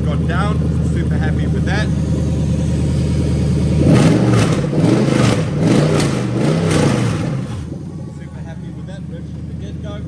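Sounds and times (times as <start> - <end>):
engine idling: 0.0 - 10.0
engine revving blips: 3.6 - 7.7.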